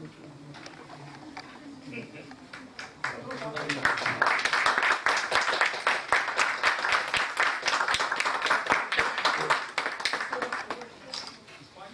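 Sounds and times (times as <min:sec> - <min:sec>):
audience applauding: 0:02.5 - 0:10.9.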